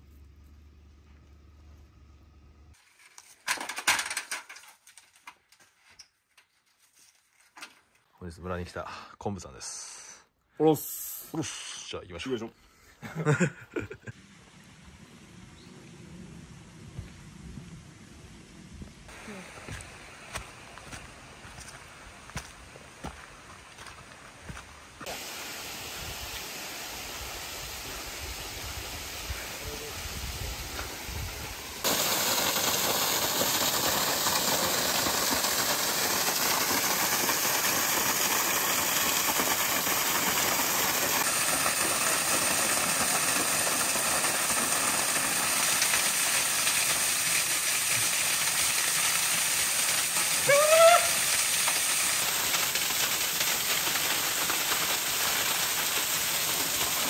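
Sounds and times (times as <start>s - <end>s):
waterfall splashing onto rock: 31.6s - 57.0s
man crying out: 50.4s - 51.2s.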